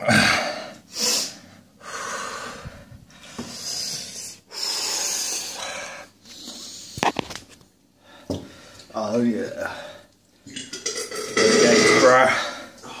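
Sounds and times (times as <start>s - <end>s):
man breathing hard: 0.1s - 7.0s.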